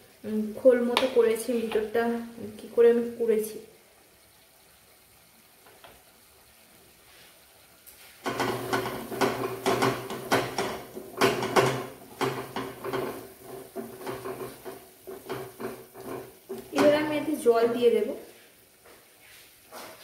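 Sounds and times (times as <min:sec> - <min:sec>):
wooden spatula scraping a metal pan: 0:08.2 - 0:18.0.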